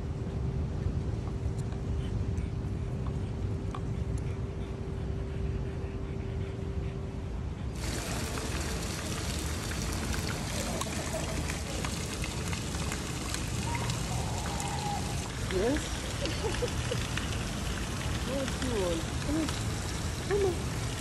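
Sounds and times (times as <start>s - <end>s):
water trickling and pouring: 7.8s - 21.0s.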